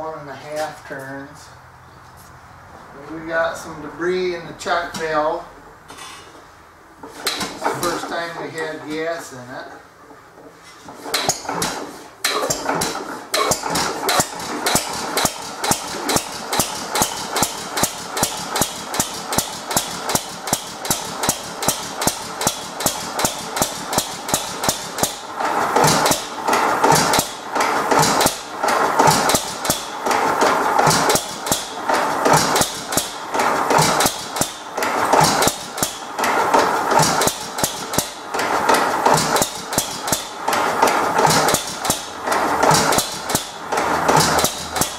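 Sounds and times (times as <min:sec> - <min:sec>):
gas engine clacking beat: 0:11.2 - 0:44.9.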